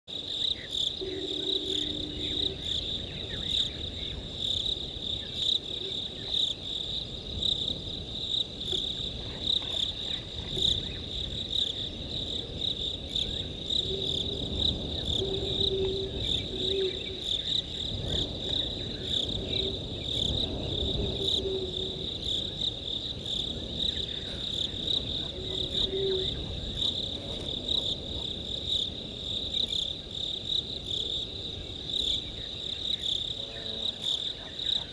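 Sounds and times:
crickets trilling: 0.1s - 34.9s
short low tones: 1.0s - 3.3s.

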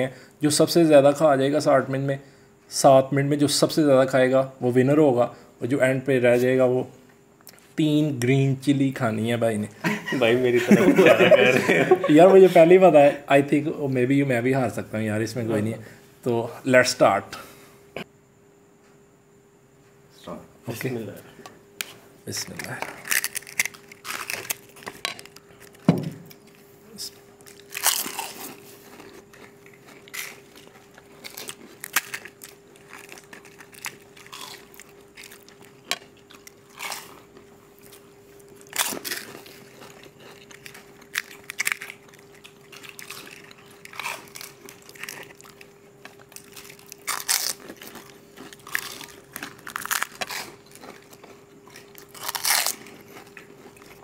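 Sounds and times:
faint steady hum: 0.0s - 54.0s
people crunching crisp food: 22.4s - 54.0s.

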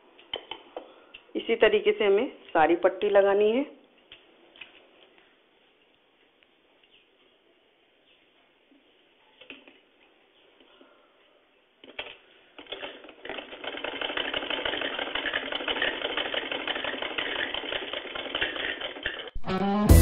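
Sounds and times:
sewing machine needle clatter: 11.8s - 19.3s
music: 19.4s - 20.0s.

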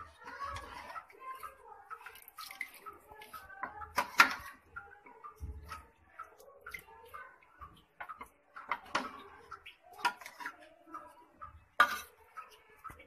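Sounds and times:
gravy pouring splash: 0.0s - 10.4s.

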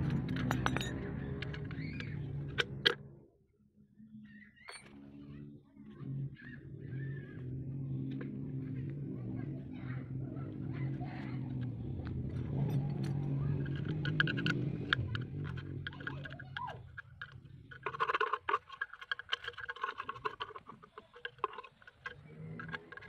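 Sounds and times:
low steady hum: 4.7s - 23.0s
metal tool scraping carbon: 11.4s - 23.0s.

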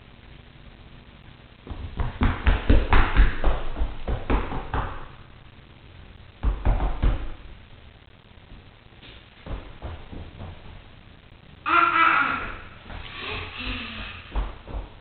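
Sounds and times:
toddler feet stamping on wooden floor: 1.7s - 5.1s, 14.2s - 15.0s.

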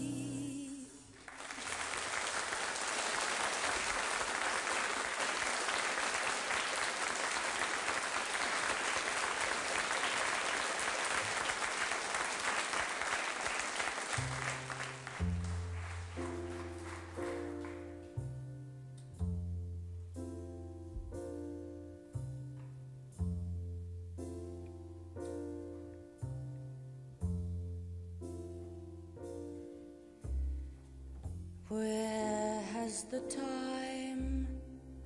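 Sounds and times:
low bass notes: 0.0s - 0.8s, 14.2s - 35.0s
audience applauding: 1.1s - 18.0s.

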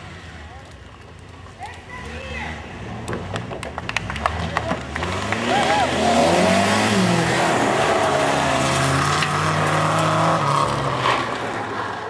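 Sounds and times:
tyres sliding on gravel: 0.0s - 12.0s
rally car engine at high revs: 2.1s - 12.0s.

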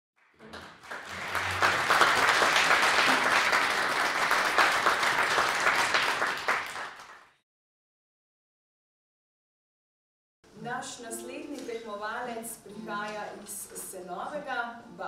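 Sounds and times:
audience applauding: 0.2s - 7.4s.

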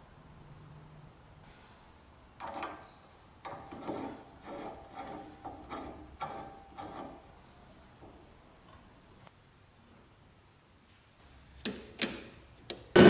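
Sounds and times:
metal screw threads rasping: 3.4s - 7.2s.

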